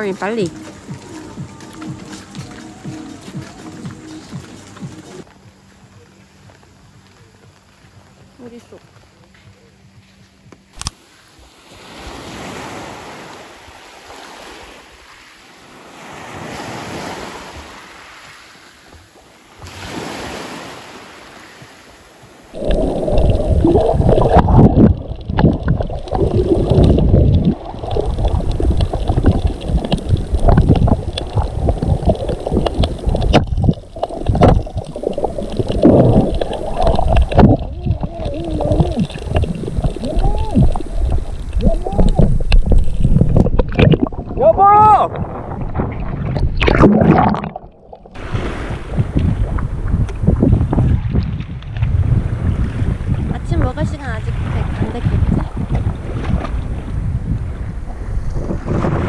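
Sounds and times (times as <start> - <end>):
waves washing ashore: 0.0 - 5.3, 10.8 - 59.0
underwater sloshing and gurgling: 22.3 - 44.5, 45.1 - 59.0.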